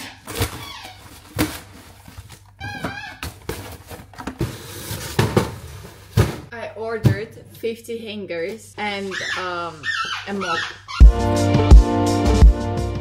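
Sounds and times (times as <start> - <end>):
cardboard rustling: 0.0 - 6.5
boxes knocking on counter: 3.2 - 7.2.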